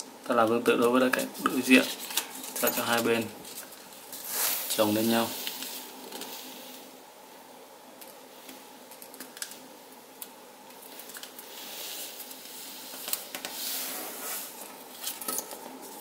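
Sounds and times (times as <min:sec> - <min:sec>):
paper swishing rustles: 0:01.3 - 0:06.8.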